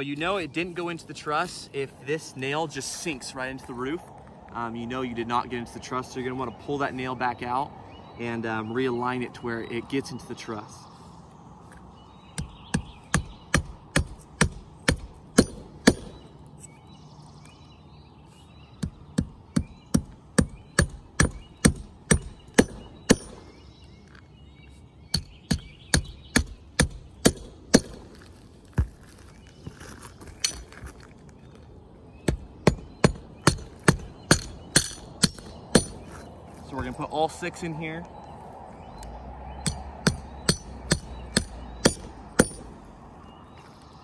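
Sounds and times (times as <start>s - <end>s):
hammer driving nails into metal: 32.7s - 36.0s.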